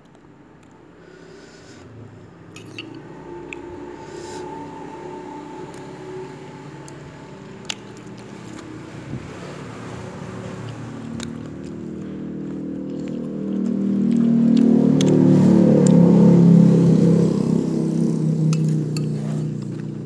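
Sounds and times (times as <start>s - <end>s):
vehicle engine approaching: 1.5s - 20.0s.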